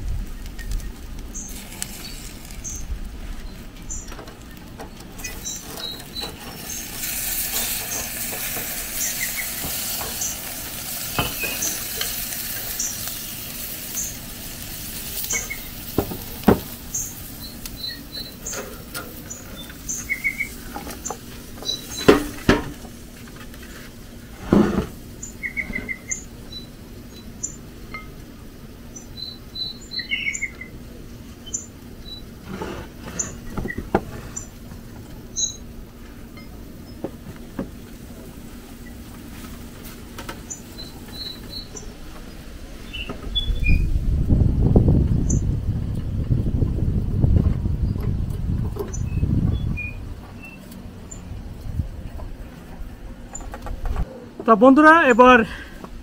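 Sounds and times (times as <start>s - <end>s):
small birds chirping: 0.2s - 22.4s, 25.1s - 27.9s, 28.9s - 32.4s, 33.0s - 34.6s, 35.2s - 35.8s, 40.4s - 44.0s, 44.6s - 45.6s, 48.8s - 51.4s.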